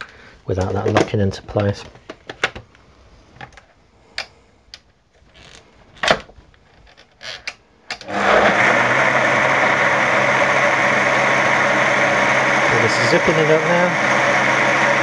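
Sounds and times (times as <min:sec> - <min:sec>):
blender motor running: 0:08.0 - 0:15.0.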